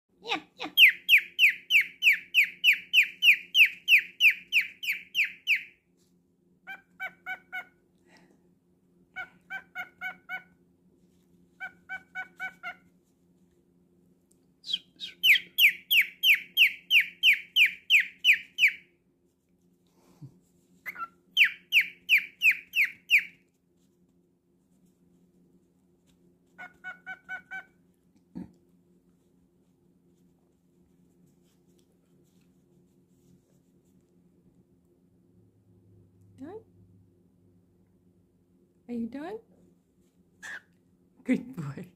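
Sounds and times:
bird imitating dog: 0:00.3 - 0:05.7, 0:40.4 - 0:40.7
cockatiel chirping: 0:00.6 - 0:05.8, 0:06.7 - 0:07.7, 0:09.2 - 0:10.5, 0:11.6 - 0:12.8, 0:14.7 - 0:18.8, 0:20.8 - 0:23.4, 0:26.6 - 0:27.7, 0:40.4 - 0:40.7.

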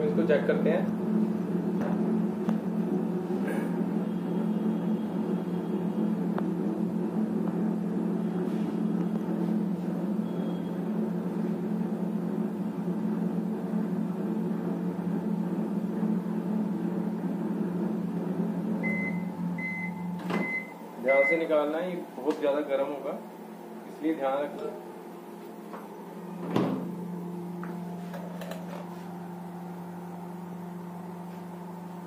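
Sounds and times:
microwave oven humming: 0:00.0 - 0:32.0
microwave beeps: 0:10.1 - 0:10.8, 0:18.8 - 0:21.6.

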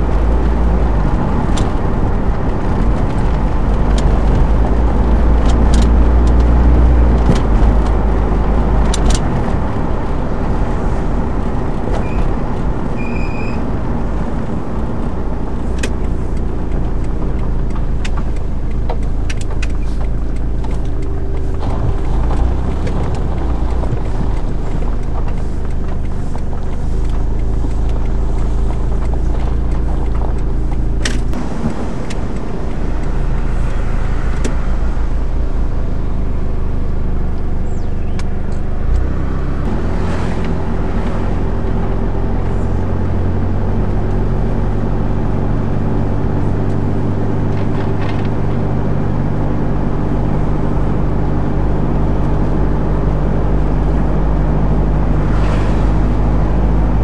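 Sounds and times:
car engine and road noise: 0:00.0 - 0:57.0
sharp clicks: 0:15.6 - 0:35.3.

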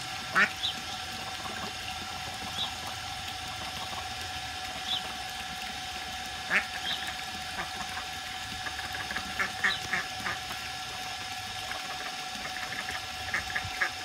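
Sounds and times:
steady hum: 0:00.0 - 0:14.0
ducklings peeping: 0:08.6 - 0:10.4.

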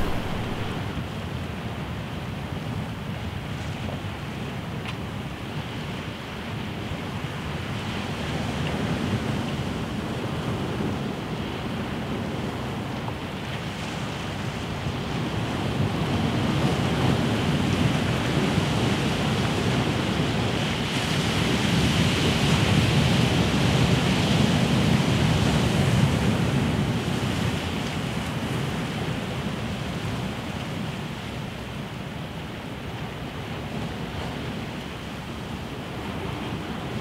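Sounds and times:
sea surf on rocky shore: 0:00.0 - 0:01.0, 0:08.4 - 0:37.0.

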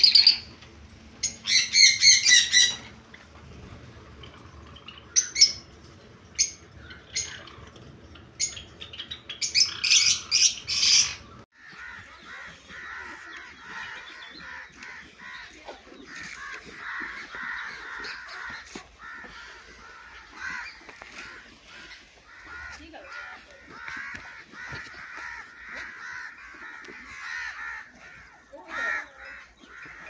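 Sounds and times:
sparrows chirping: 0:00.0 - 0:19.2
chatter of many birds: 0:00.0 - 0:30.0.

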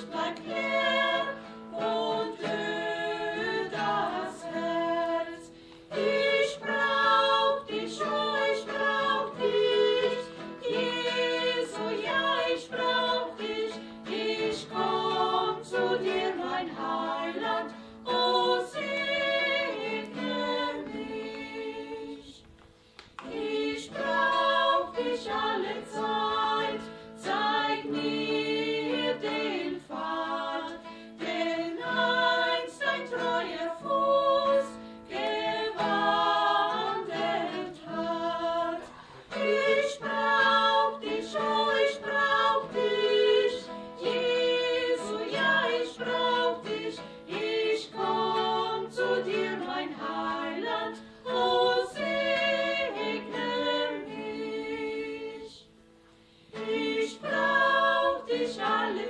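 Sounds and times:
strummed acoustic guitar: 0:00.0 - 0:21.4, 0:23.9 - 0:54.0
women singing a hymn in harmony: 0:00.0 - 0:22.6, 0:23.2 - 0:59.0.

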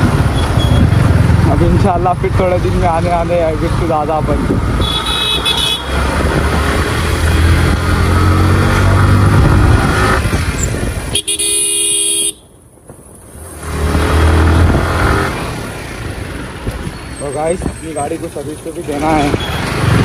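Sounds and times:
vehicle horn: 0:04.8 - 0:05.9, 0:11.1 - 0:12.5
motorcycle engine accelerating: 0:05.9 - 0:11.0.

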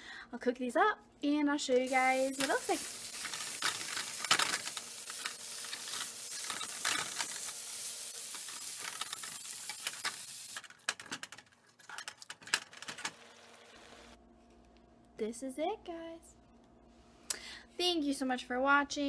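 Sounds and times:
meat sizzling in a frying pan: 0:01.9 - 0:10.6.

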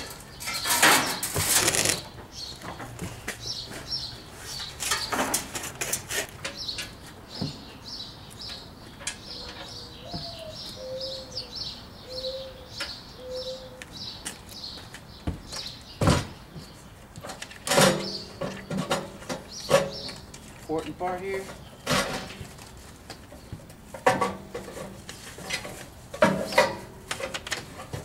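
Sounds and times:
small birds chirping: 0:00.0 - 0:24.0
metal knocks and clanks: 0:23.9 - 0:28.0.

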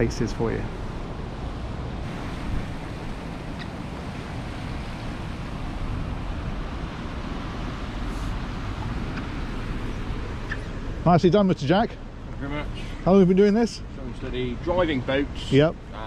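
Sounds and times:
boat engines rumbling: 0:00.0 - 0:16.0
wind on microphone: 0:01.2 - 0:09.8
water moving along hull: 0:01.7 - 0:10.3.

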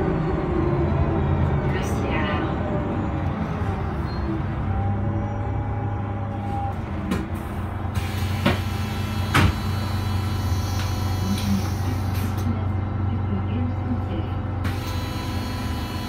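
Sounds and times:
bus engine and road drone: 0:00.0 - 0:16.0
bus body rattling: 0:06.3 - 0:13.8.

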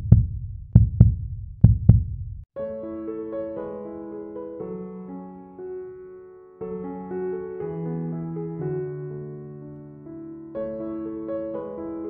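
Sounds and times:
slow piano music: 0:02.6 - 0:12.0.

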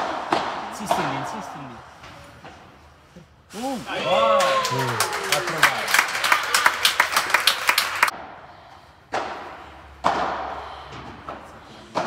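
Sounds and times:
rackets hitting ball with echo: 0:00.0 - 0:02.8, 0:08.1 - 0:12.0
spectators clapping: 0:04.3 - 0:08.1.

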